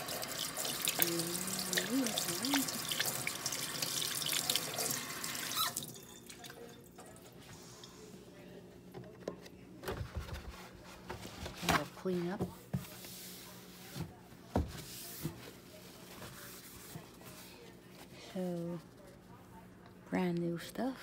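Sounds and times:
tap water running into sink: 0.0 - 6.5.

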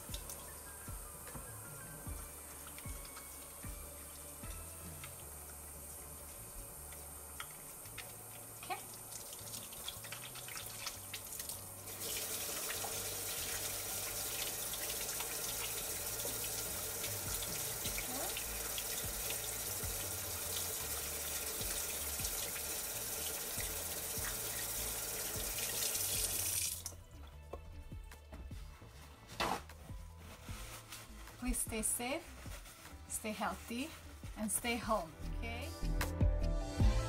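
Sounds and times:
faucet running into sink: 2.5 - 27.0.

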